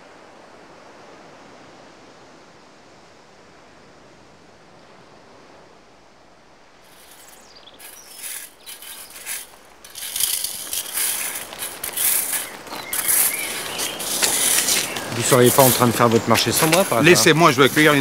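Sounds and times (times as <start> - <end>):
faint steady hiss: 0.0 - 18.0
people walking on dirt path: 6.9 - 18.0.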